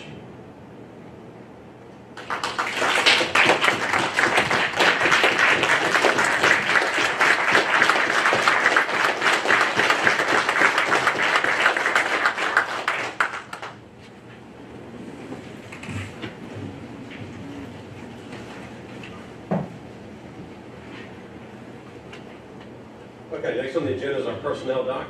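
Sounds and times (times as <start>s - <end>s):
small crowd clapping: 2.2s - 13.8s.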